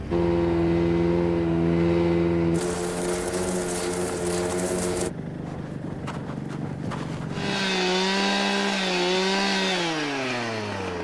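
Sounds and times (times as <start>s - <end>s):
snowmobile engine running: 0.0s - 11.0s
ice auger buzzing: 2.5s - 5.9s, 7.2s - 11.0s.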